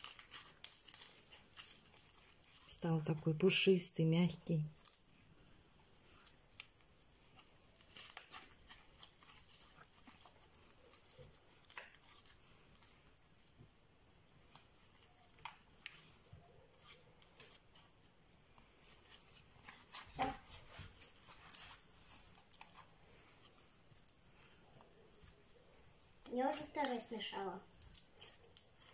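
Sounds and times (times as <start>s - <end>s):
slime sticky clicks and crackles: 4.8s - 5.2s.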